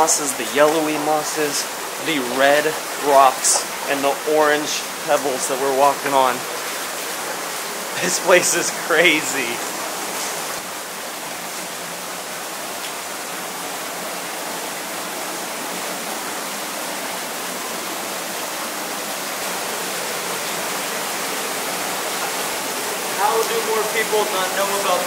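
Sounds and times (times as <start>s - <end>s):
water dripping onto pebbles: 0.0s - 11.8s, 12.5s - 13.4s, 19.2s - 25.0s.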